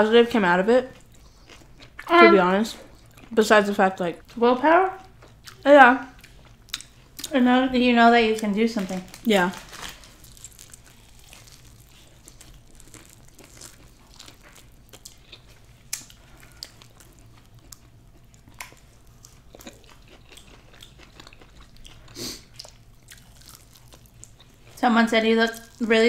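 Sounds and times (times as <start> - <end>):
chewing and biting chicken wings: 9.2 - 24.8.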